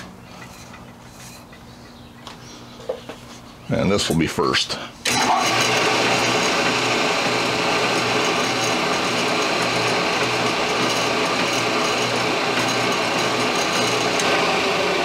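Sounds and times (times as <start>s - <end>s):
lathe drive whirring and rattling: 5.0s - 15.0s.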